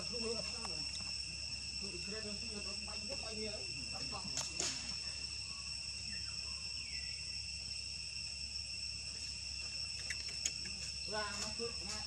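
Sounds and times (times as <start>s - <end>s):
insect chorus drone: 0.0s - 12.0s.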